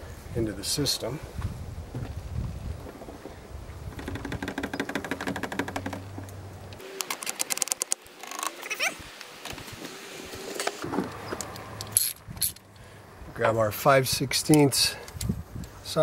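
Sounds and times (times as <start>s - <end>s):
animal cries: 8.2s - 9.0s.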